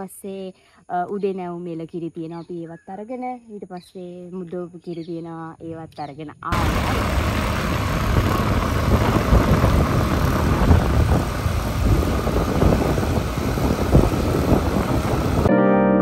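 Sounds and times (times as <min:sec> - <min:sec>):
wind buffeting microphone: 0:06.5 - 0:15.5.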